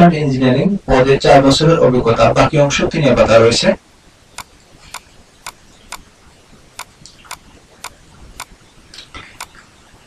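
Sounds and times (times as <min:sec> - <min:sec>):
computer mouse clicks: 0:04.4 - 0:06.1, 0:06.8 - 0:09.7.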